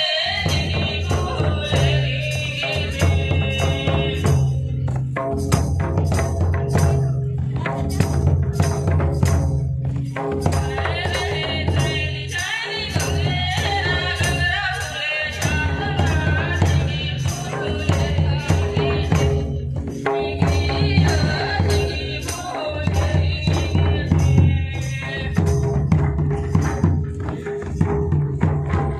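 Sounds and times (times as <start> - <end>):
group singing: 0.0 - 4.9, 10.0 - 26.5
drums beating: 0.3 - 28.9
jingling metal percussion: 0.3 - 28.9.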